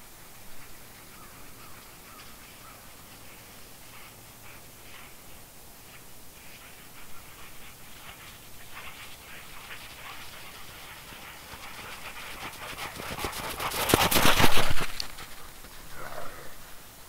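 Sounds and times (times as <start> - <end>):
dog paws crunching in snow: 0.2 - 16.7.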